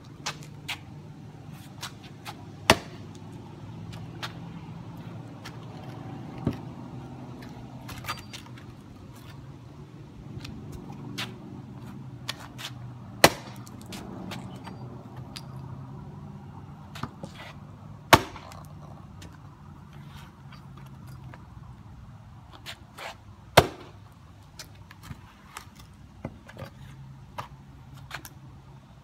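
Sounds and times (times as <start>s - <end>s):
hatchet chopping wood: 2.2s - 3.2s, 12.6s - 14.0s, 18.1s - 18.7s, 23.5s - 24.0s.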